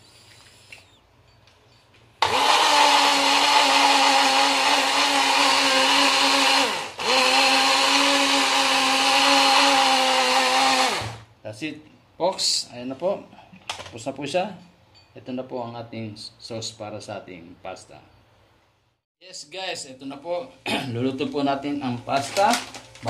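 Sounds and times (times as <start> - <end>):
blender motor whine: 2.2 - 11.3.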